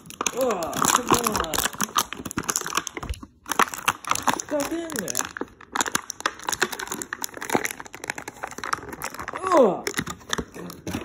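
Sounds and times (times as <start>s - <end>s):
plastic packaging crinkling: 0.0s - 11.0s.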